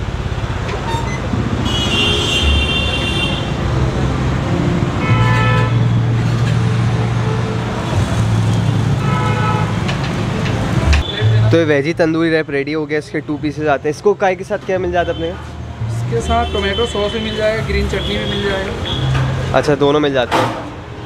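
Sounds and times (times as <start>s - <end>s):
busy road traffic: 0.0s - 21.0s
vehicle horns tooting: 0.7s - 3.6s, 5.0s - 6.0s, 8.9s - 9.9s, 10.9s - 11.4s, 16.2s - 19.4s.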